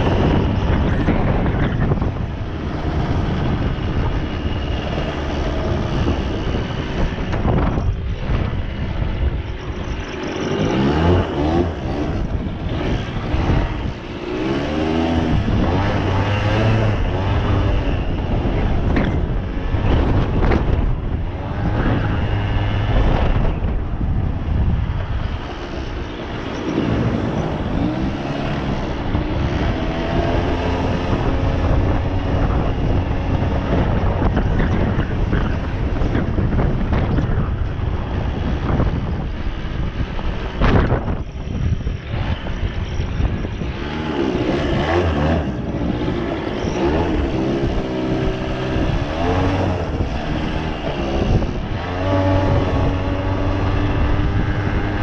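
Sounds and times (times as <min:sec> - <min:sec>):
two-stroke engine revving: 0:10.1 - 0:19.2, 0:42.1 - 0:55.0.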